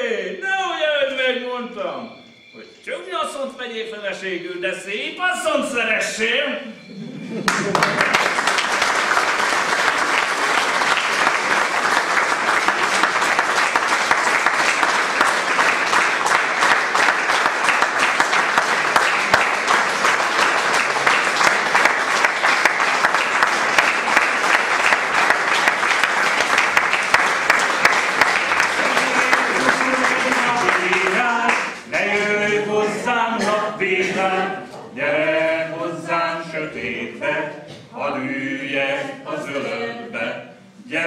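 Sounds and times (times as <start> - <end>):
audience applauding: 7.4 - 34.0.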